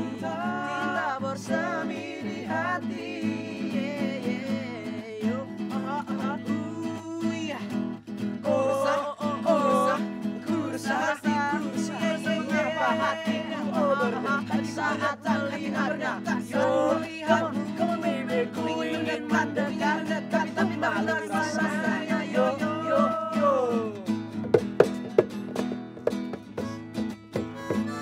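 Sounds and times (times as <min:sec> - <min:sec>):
group of young voices singing: 0:00.0 - 0:04.1, 0:08.4 - 0:23.8
strummed acoustic guitar: 0:00.0 - 0:28.0
hand drums: 0:24.3 - 0:28.0.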